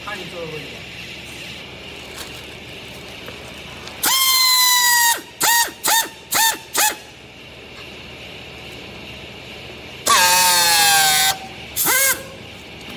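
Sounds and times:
horn blasts: 0:10.1 - 0:12.3.

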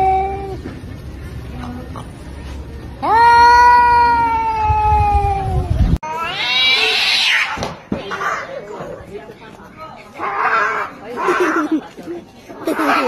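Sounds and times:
cat yowling: 0:03.0 - 0:07.6.

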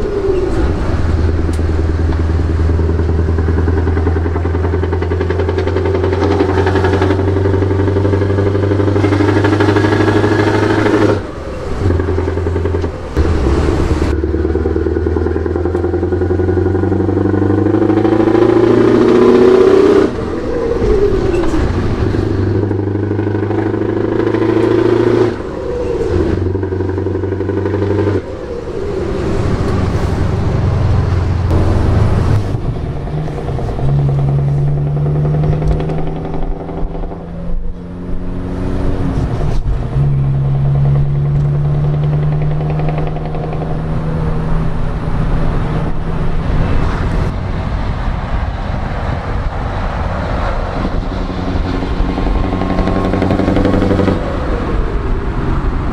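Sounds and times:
truck engine under load: 0:00.0 - 0:55.9.

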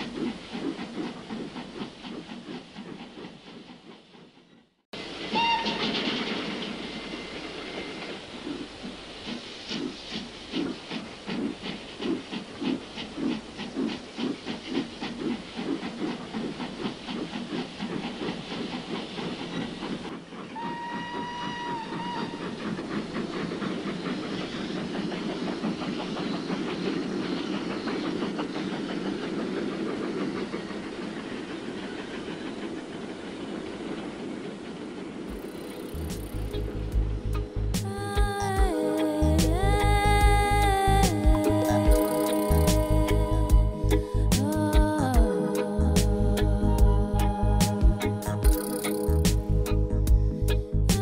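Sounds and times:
steam locomotive chuffing: 0:00.0 - 0:51.0
train rushing noise: 0:00.0 - 0:51.0
steam whistle: 0:05.3 - 0:06.0, 0:20.6 - 0:22.6.

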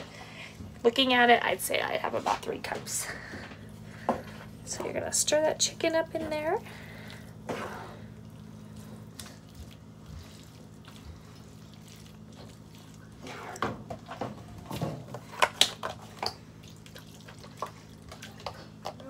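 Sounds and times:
low steady hum: 0:00.0 - 0:19.0
liquid sloshing and squelching: 0:06.2 - 0:19.0.

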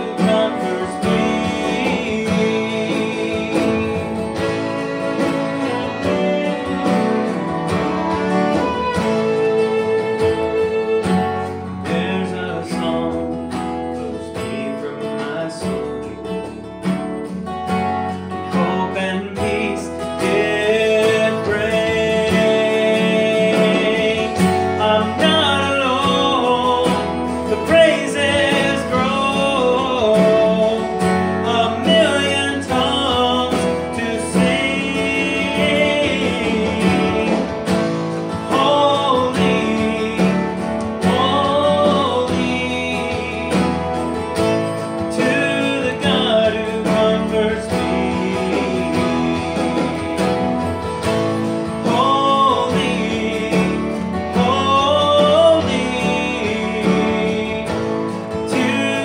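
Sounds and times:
acoustic guitar: 0:00.0 - 0:59.0
man singing: 0:00.0 - 0:59.0.

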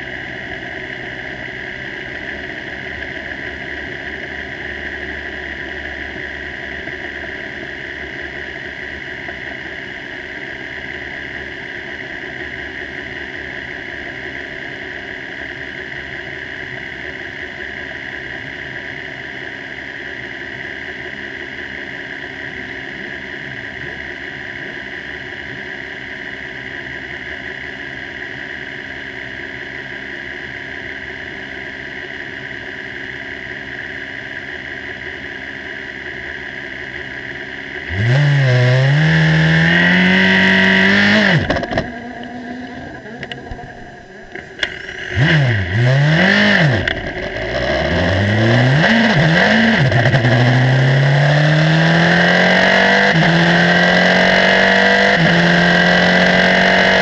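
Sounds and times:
race car engine idling: 0:41.4 - 0:45.8.

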